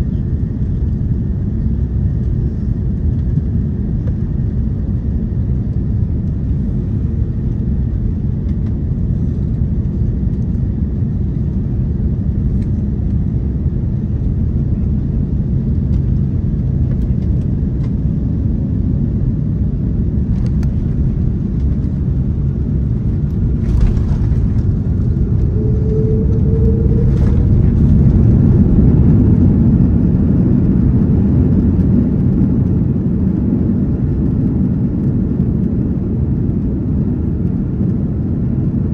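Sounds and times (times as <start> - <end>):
airplane cabin engine rumble: 0.0 - 38.9.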